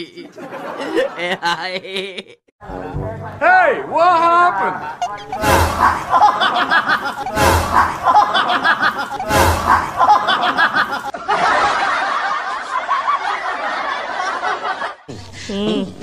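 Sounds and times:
person laughing: 0:00.0 - 0:02.5, 0:05.8 - 0:11.1, 0:15.1 - 0:16.0.

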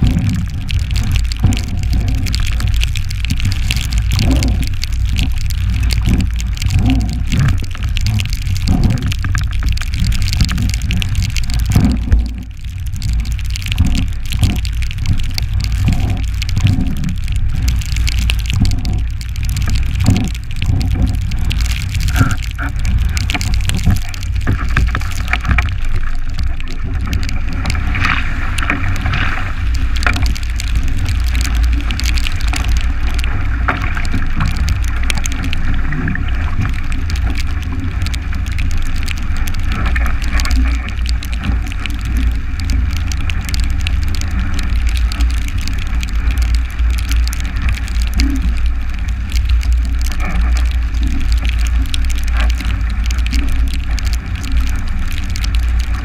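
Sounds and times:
water rushing past hull: 0:00.0 - 0:56.0.

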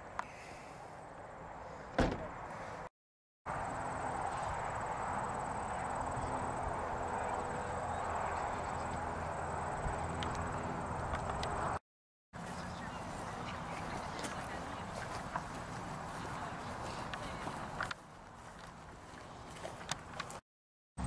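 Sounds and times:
brief thump: 0:01.9 - 0:02.3
distant crowd murmuring: 0:05.0 - 0:10.6, 0:12.4 - 0:18.0.

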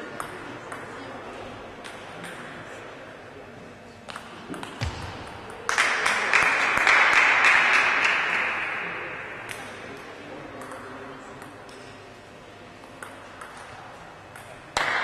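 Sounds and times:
audience applause: 0:05.7 - 0:08.6.

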